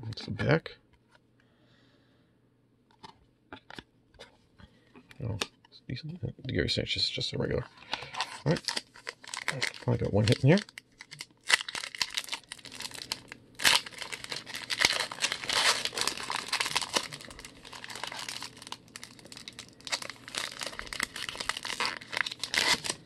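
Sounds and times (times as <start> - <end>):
foil wrapper crinkling: 7.8 - 23.0.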